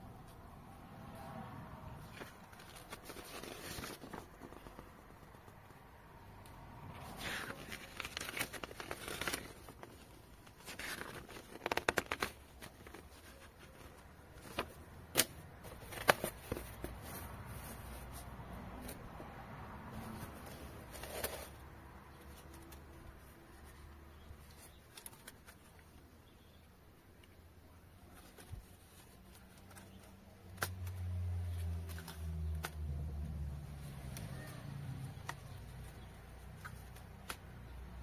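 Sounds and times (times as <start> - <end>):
paper rustling and crinkling: 2.0 - 5.6, 7.0 - 19.0, 19.9 - 23.8, 28.1 - 32.8
pages turning: 2.0 - 5.8, 6.9 - 19.0, 19.8 - 23.8, 24.4 - 25.9, 28.1 - 32.9.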